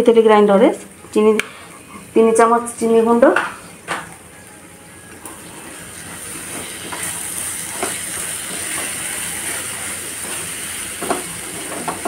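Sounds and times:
mixture sizzling in a frying pan: 5.2s - 12.0s
spatula scraping a pan: 5.8s - 12.0s.

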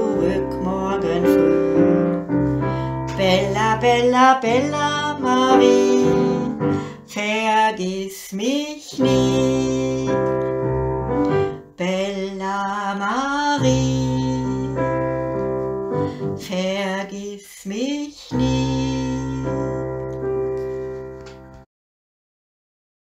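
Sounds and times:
electric keyboard chords and melody: 0.0s - 7.1s, 9.0s - 11.8s, 13.6s - 16.4s, 18.4s - 21.7s.

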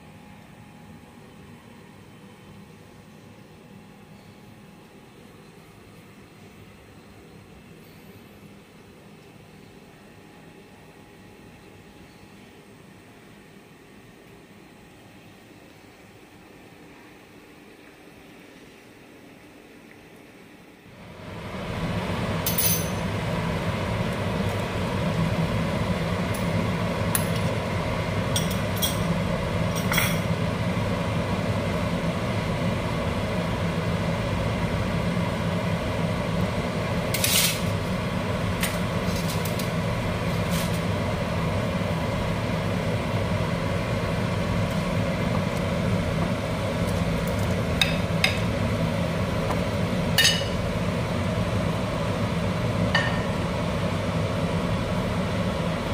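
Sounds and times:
water boiling in a pan: 20.9s - 55.9s.

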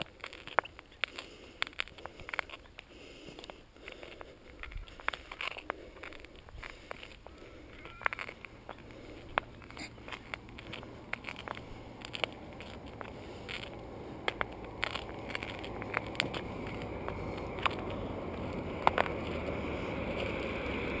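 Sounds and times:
sharp clicks and crackles: 0.0s - 21.0s
truck trailers rumbling past: 6.9s - 21.0s
faint high whine: 7.2s - 15.2s.

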